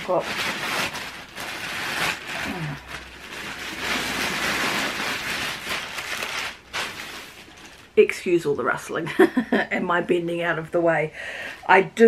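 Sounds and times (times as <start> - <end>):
packing material rustling: 0.0 - 8.1.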